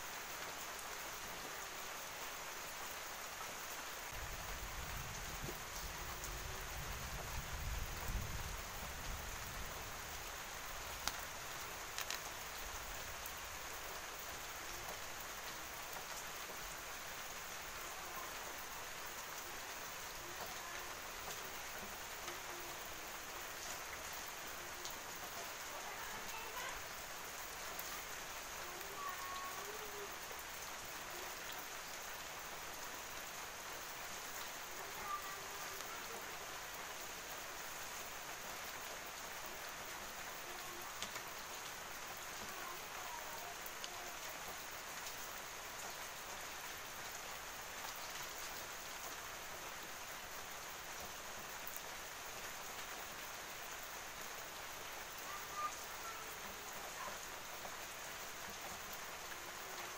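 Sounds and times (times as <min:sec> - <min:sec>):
rain falling steadily: 0:00.0 - 0:59.9
faint clicks: 0:11.0 - 0:11.3, 0:11.9 - 0:12.4.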